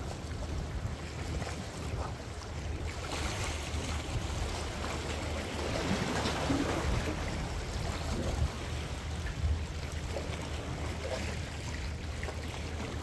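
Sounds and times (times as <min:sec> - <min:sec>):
waves splashing against rocks: 0:00.0 - 0:13.0.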